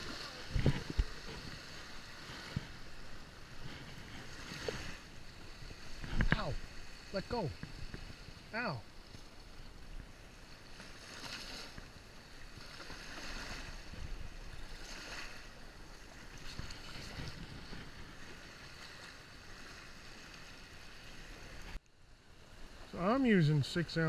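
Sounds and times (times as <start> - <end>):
wind on microphone: 0.0 - 8.5, 13.4 - 18.9
surf washing: 0.0 - 24.0.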